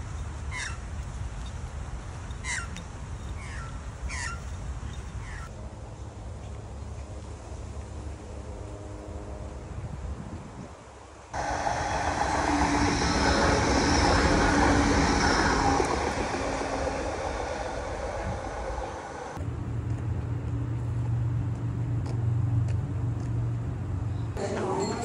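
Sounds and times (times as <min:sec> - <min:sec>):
tram passing on tracks: 0:11.4 - 0:25.0.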